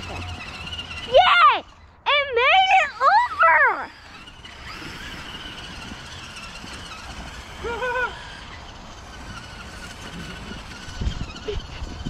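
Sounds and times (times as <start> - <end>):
toy truck electric motors whining: 0.0 - 12.0
high wavering voice: 1.0 - 4.0.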